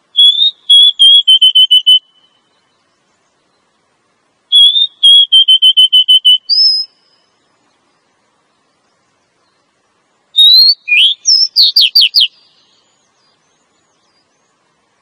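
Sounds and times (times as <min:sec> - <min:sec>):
bird whistled calls: 0:00.2 - 0:02.7, 0:04.5 - 0:07.4, 0:10.4 - 0:13.4.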